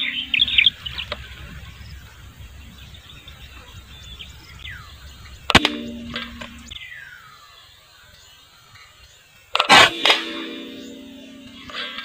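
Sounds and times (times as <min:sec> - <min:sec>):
small birds chirping: 0:00.0 - 0:09.7
low outdoor ambience: 0:00.0 - 0:12.0
sharp crack: 0:05.2 - 0:06.8, 0:09.5 - 0:12.0.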